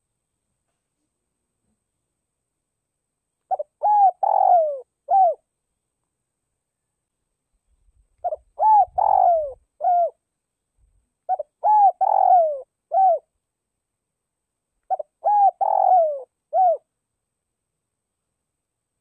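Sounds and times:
dove cooing: 3.5 - 5.4, 8.2 - 10.2, 11.3 - 13.3, 14.9 - 16.9.

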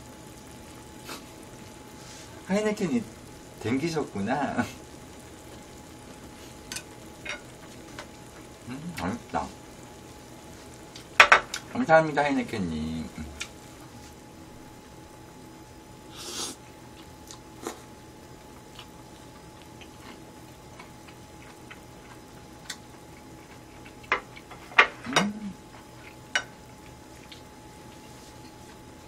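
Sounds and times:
faint steady hum: 0.0 - 29.0
chewing: 16.9 - 17.9, 18.6 - 24.5.

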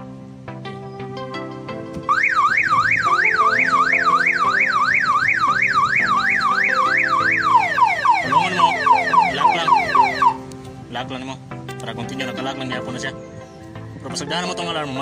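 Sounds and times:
car alarm siren wailing: 2.1 - 10.4
falling alarm chirps: 2.1 - 10.4.

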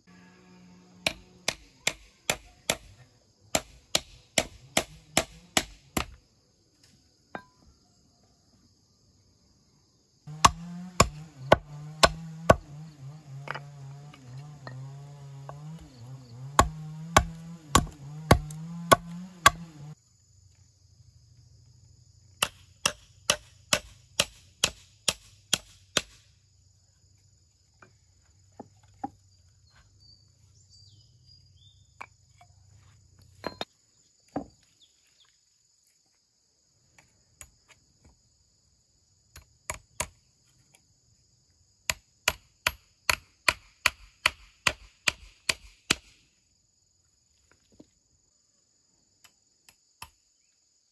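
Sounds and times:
hammer nailing wood: 1.0 - 2.9, 3.5 - 6.2, 10.3 - 12.8, 16.5 - 20.0, 22.4 - 26.2, 41.9 - 46.1
knife chopping on wooden block: 10.3 - 20.0.

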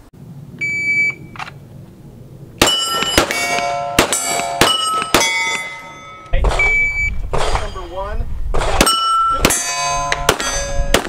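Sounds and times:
shot timer beep: 0.6 - 1.3, 6.6 - 7.2
pistol shots: 2.6 - 5.7, 8.6 - 11.0
steel target plate ringing: 2.6 - 7.9, 8.8 - 11.0.

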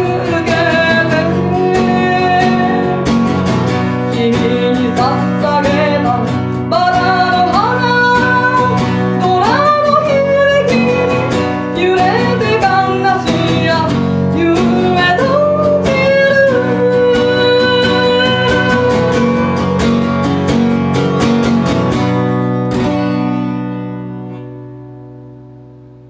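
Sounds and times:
woman singing: 0.0 - 20.4
acoustic guitar strumming: 0.0 - 26.0.

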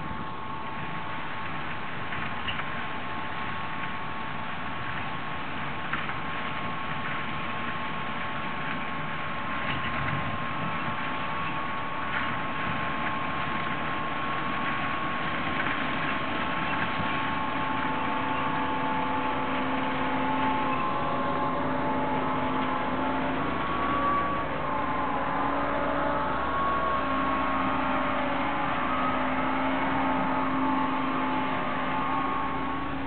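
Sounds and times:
diesel engines droning: 0.0 - 33.0
deep rumble: 15.3 - 33.0.

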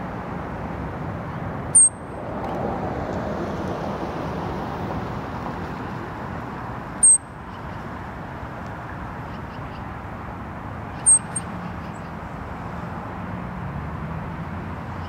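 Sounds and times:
traffic hum: 0.0 - 15.0
ground squirrel shrill chirps: 7.0 - 7.2, 11.0 - 11.5.

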